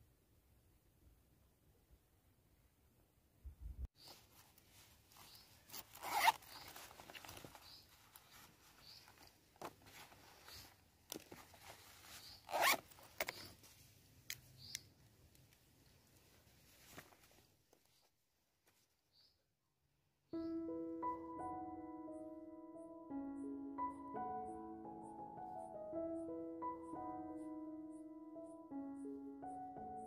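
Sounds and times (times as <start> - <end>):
rustling of pens and paper: 4.0 - 14.7, 15.4 - 19.0
zipper rasping: 5.6 - 9.2, 9.9 - 13.5.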